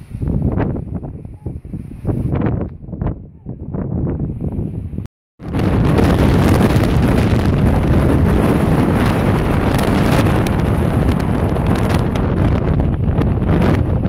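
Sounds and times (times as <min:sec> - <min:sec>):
wind on microphone rumble: 0:00.0 - 0:14.0.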